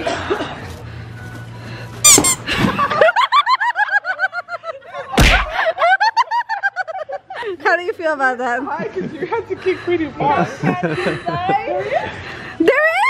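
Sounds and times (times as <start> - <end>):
high-pitched squeaky laughter: 2.1 - 2.5.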